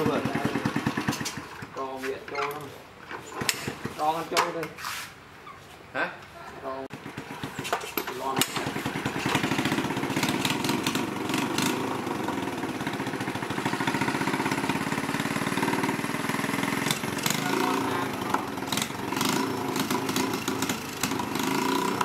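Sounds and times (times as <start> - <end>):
motorbike engine idling: 0.0 - 1.8, 6.9 - 22.0.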